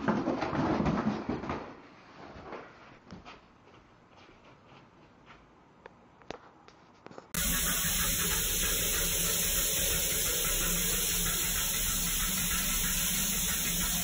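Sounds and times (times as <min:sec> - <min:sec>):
shower water spraying: 0:07.4 - 0:14.0.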